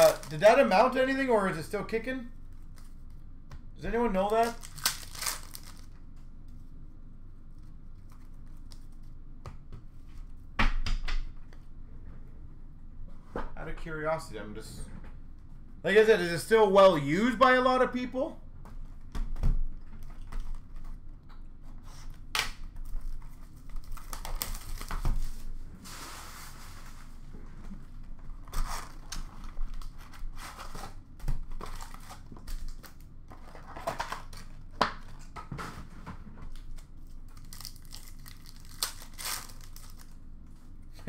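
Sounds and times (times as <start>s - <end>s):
shrink-wrap tearing: 0.0s - 0.8s, 4.1s - 6.0s, 22.9s - 25.0s, 37.3s - 40.2s
foil packs crinkling: 0.0s - 1.0s, 4.0s - 6.0s, 22.9s - 25.5s, 31.5s - 34.6s, 36.6s - 40.2s.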